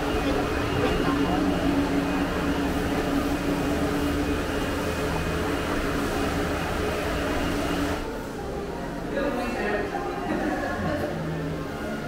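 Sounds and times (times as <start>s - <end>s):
mechanical hum with rushing noise: 0.0s - 12.0s.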